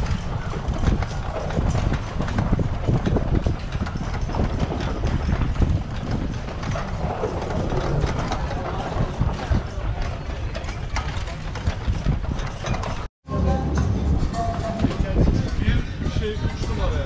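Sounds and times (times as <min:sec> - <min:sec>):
hooves clip-clopping on asphalt: 0:00.0 - 0:13.1.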